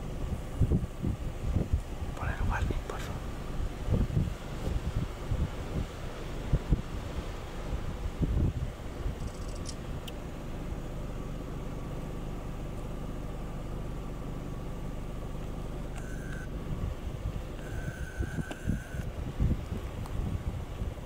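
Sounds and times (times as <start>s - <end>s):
wind buffeting microphone: 0.0s - 10.1s, 16.4s - 21.0s
low outdoor rumble: 0.0s - 21.0s.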